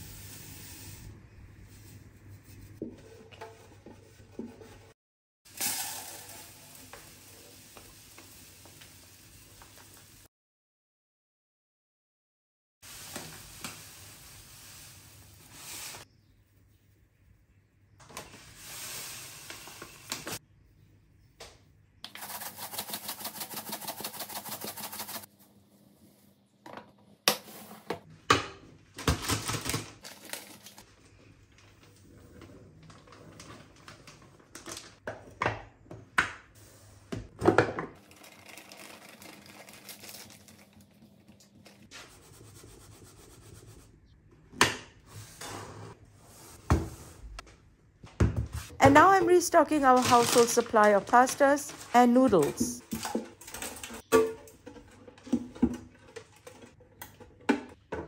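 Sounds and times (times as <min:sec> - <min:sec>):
flour pouring: 0:05.5 - 0:08.7, 0:22.1 - 0:25.3, 0:38.0 - 0:41.0
granules pouring into plastic canister: 0:38.0 - 0:40.8.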